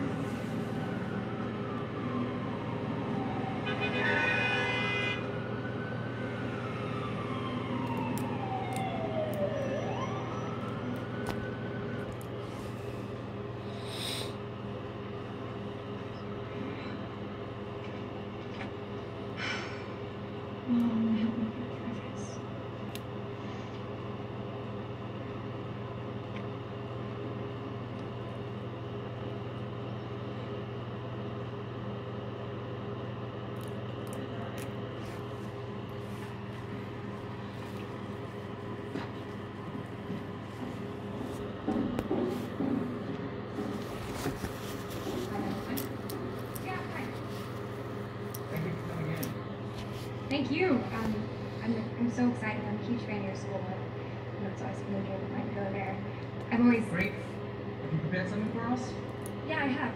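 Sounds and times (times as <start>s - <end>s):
siren wailing: 0.0s - 12.4s
steady low hum: 0.0s - 59.9s.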